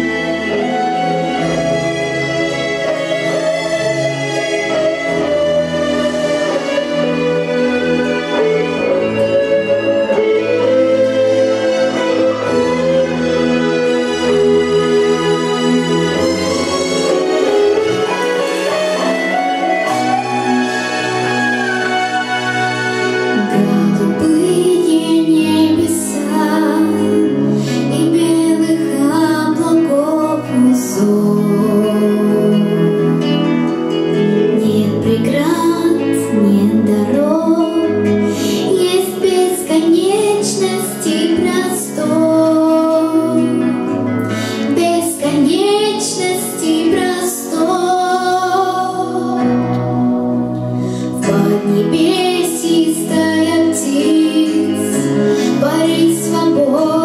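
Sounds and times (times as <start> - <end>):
instrumental accompaniment: 0.0 - 57.0
girl singing into microphone: 23.3 - 57.0.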